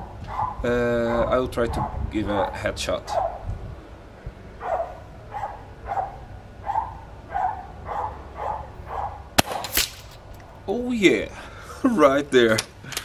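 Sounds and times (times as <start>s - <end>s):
dog barking: 0.1s - 2.0s, 3.1s - 3.5s, 4.6s - 9.3s
air rifle shots: 9.4s - 10.3s.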